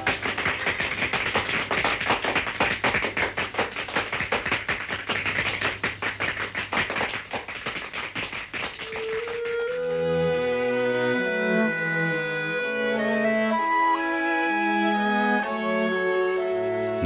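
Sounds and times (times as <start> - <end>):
quick taps and clicks: 0.0 - 9.9.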